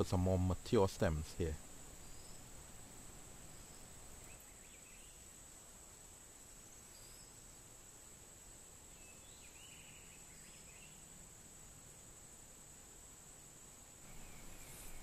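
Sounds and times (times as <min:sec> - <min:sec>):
faint insect drone: 0:00.0 - 0:15.0
faint bird chirps: 0:01.4 - 0:05.4, 0:06.8 - 0:07.6, 0:08.9 - 0:11.2, 0:14.0 - 0:15.0.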